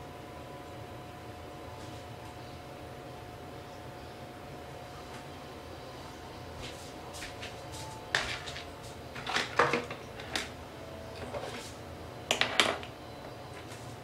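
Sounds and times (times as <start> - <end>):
makeup containers clattering on counter: 9.2 - 10.5, 12.3 - 12.9.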